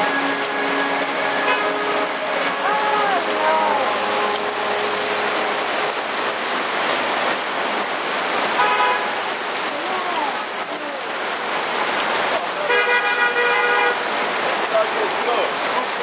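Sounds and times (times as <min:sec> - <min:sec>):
car horn: 0:00.0 - 0:04.9, 0:08.6 - 0:09.3, 0:12.7 - 0:14.2
cars splashing through water: 0:00.0 - 0:16.0
heavy rain on a parasol: 0:00.0 - 0:16.0.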